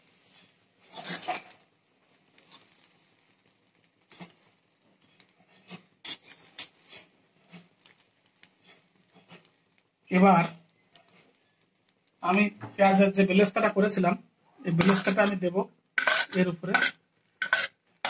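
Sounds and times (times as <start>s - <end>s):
metal spoon scraping a pan: 0.3s - 1.6s, 4.1s - 9.5s, 14.7s - 17.8s.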